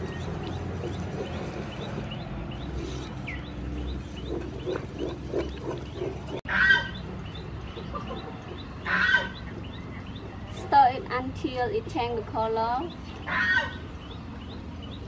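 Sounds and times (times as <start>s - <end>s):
chickens calling: 0.0s - 10.8s.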